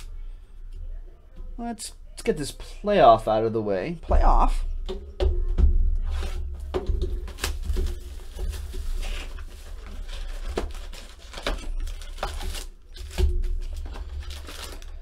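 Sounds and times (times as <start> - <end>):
card packs rustling and crinkling: 6.1 - 15.0.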